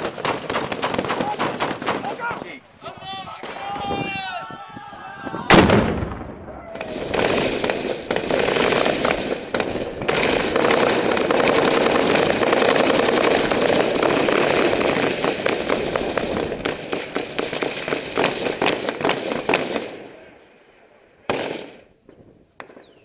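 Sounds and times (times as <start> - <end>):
automatic gunfire: 0.0 - 2.2, 6.8 - 20.0, 21.3 - 21.8.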